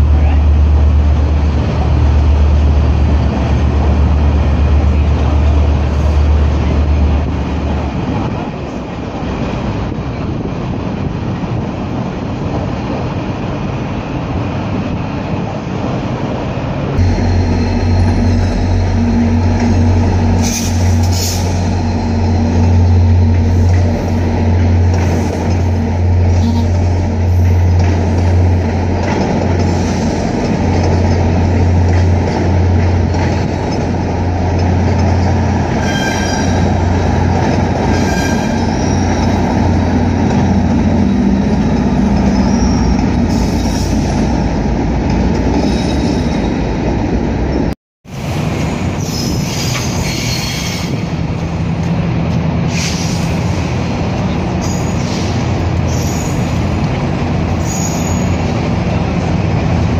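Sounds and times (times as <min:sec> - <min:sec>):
train wheels rumbling on rails: 0:00.0 - 0:59.9
low hum: 0:17.0 - 0:24.8
high wheel squeals: 0:35.7 - 0:36.8, 0:37.8 - 0:39.8, 0:40.9 - 0:44.2, 0:45.6 - 0:46.7, 0:49.0 - 0:51.1, 0:54.6 - 0:56.6, 0:57.6 - 0:58.5.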